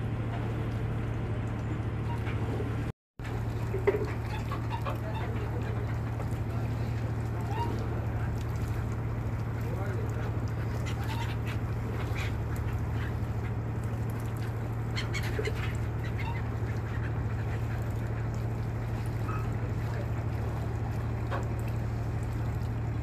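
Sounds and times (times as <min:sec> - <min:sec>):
low machinery hum: 0:00.0 - 0:23.0
gulls calling: 0:01.2 - 0:23.0.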